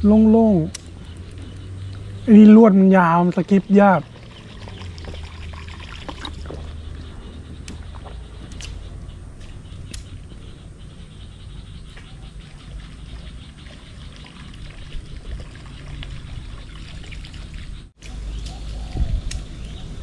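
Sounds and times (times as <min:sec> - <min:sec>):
steady low rumble: 0:00.0 - 0:20.0
water trickling and lapping: 0:00.0 - 0:20.0
sharp clicks: 0:00.7 - 0:02.0, 0:07.6 - 0:10.4.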